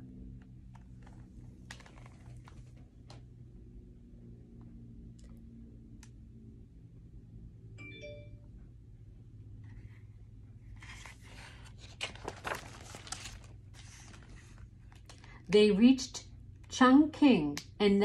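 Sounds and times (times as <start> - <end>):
low hum: 0.0 - 16.7
book page rustling: 0.7 - 3.1, 10.7 - 15.4
short high chime: 7.8 - 8.4.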